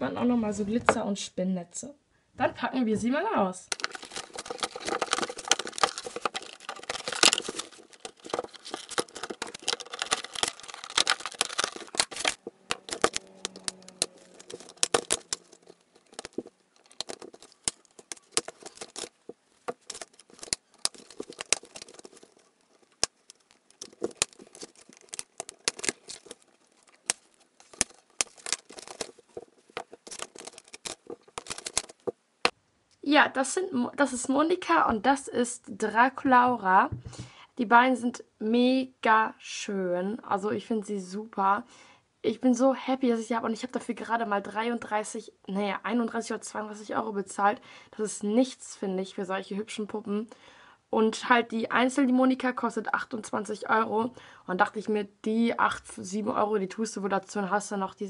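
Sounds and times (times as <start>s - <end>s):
plastic and cardboard crinkling: 3.7s - 32.2s.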